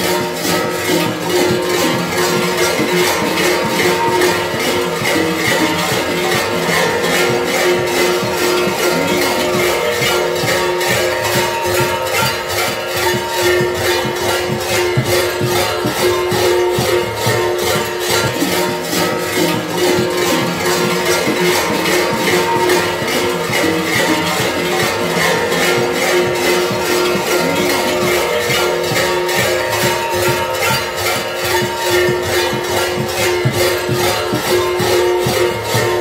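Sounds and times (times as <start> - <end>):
large metal bells clanging: 0.0 - 36.0.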